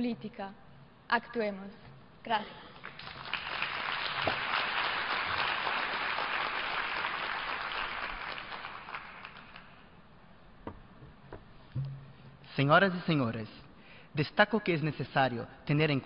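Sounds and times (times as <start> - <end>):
audience applauding: 2.8 - 9.9
faint knocks: 10.6 - 12.4.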